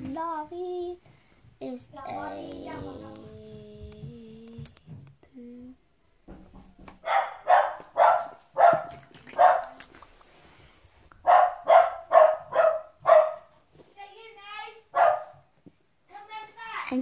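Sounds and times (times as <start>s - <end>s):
dog barking: 7.0s - 9.8s, 11.2s - 13.5s, 14.9s - 15.5s.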